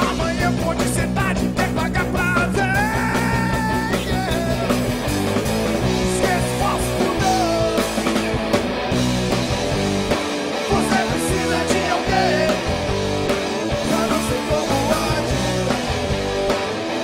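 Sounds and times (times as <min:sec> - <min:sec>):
man singing: 0:00.0 - 0:04.9, 0:06.0 - 0:08.3, 0:10.6 - 0:12.8, 0:13.5 - 0:15.8
rock band playing live: 0:00.0 - 0:17.0.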